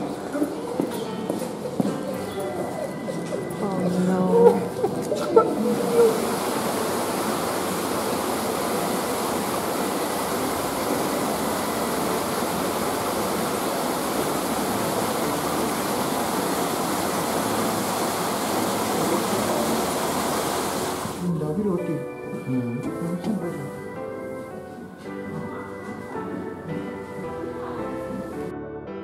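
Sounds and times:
steady rushing noise: 5.5 - 21.2.

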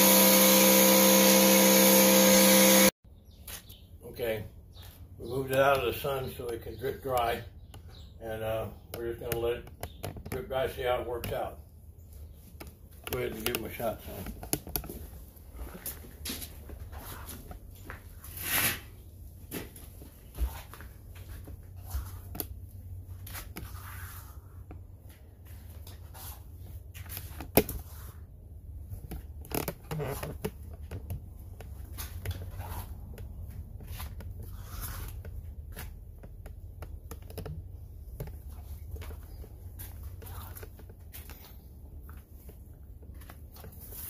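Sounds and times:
microphone handling clicks and scrapes: 8.8 - 10.5, 28.9 - 44.0.

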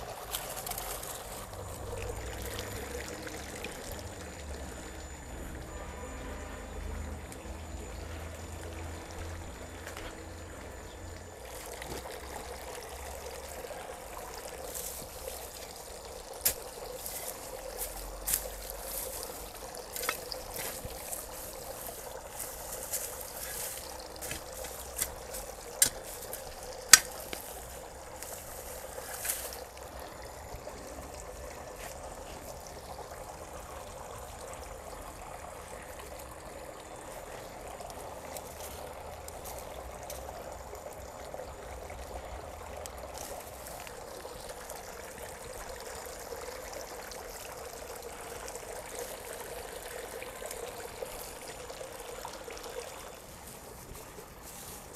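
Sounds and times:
steady rushing hiss: 14.7 - 30.2
spade digging into soil: 23.4 - 27.5.

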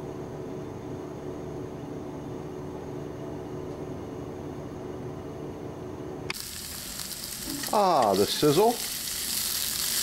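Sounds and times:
vegetables sizzling in oil: 6.3 - 10.0.

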